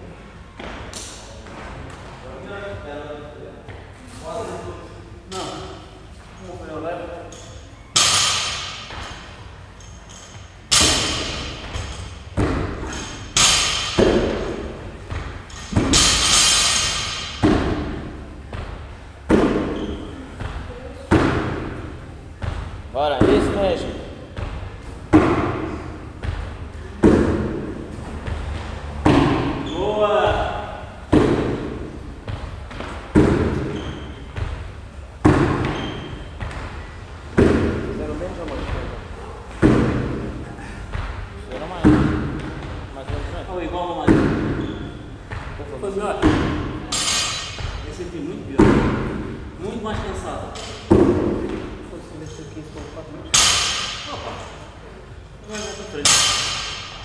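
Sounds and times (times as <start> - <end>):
heavy impacts on rubber floor: 7.3 - 54.6, 55.5 - 57.0
barbell dropping heavy thud: 15.5 - 17.8.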